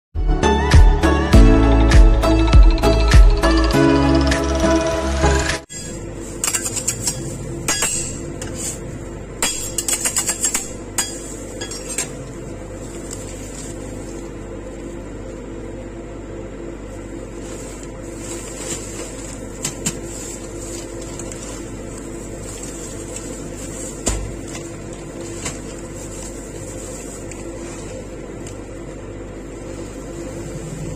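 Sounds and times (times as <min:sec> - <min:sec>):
steady mechanical hum: 0:02.8 - 0:30.9
metal spatulas scraping steel plate: 0:05.7 - 0:08.8.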